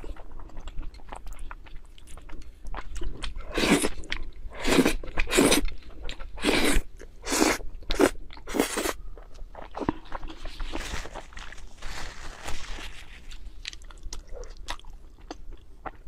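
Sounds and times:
wet chewing: 0.0s - 16.0s
loud noodle slurps: 4.6s - 5.6s, 6.4s - 9.0s.

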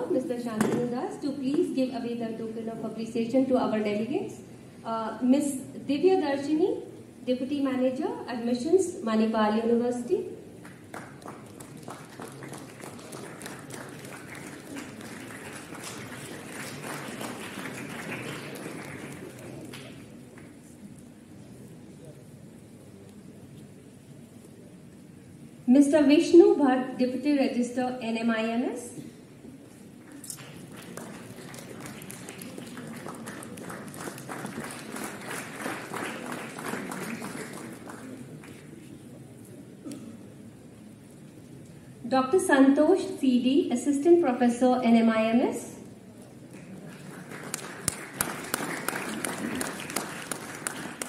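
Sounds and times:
audience clapping: 10.6s - 20.7s, 30.0s - 39.1s, 46.5s - 51.0s.

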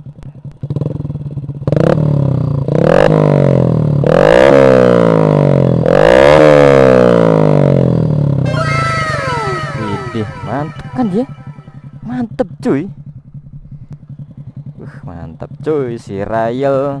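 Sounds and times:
motorcycle engine revving: 0.6s - 12.4s.

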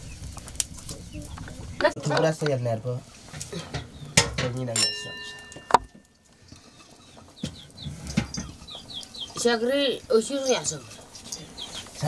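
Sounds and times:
metal pot ringing: 4.2s - 6.9s
chickens clucking: 5.4s - 12.0s.

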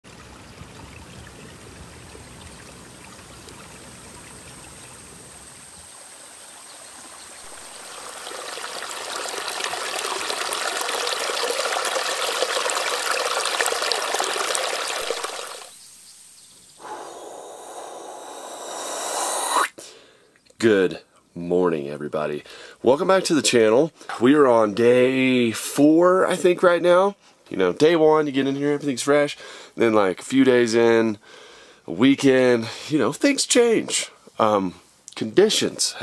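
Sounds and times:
water running and trickling: 0.1s - 16.4s
short rising rush of noise: 16.8s - 19.7s.

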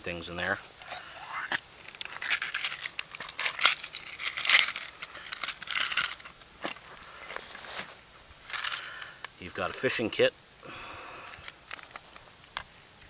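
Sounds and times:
metal tins clicking and scraping: 0.8s - 6.3s.

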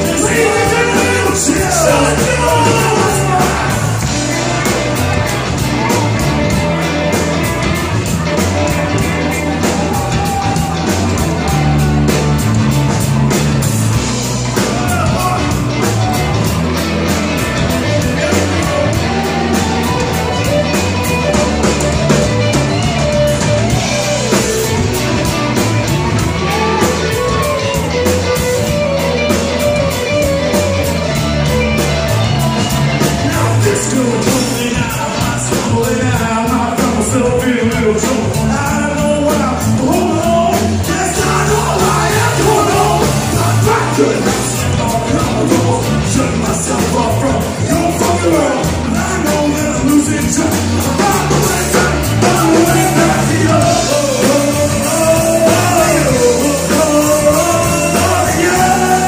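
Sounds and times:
person singing: 0.0s - 6.1s, 33.0s - 59.0s
bass guitar: 0.0s - 59.0s
drum kit: 0.0s - 59.0s
electric guitars: 0.0s - 59.0s.

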